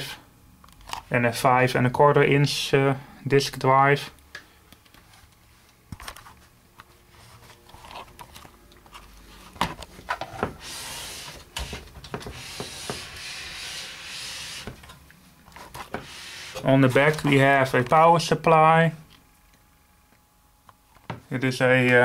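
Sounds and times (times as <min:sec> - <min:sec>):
handling rubbing and scraping: 0:05.0 - 0:17.6.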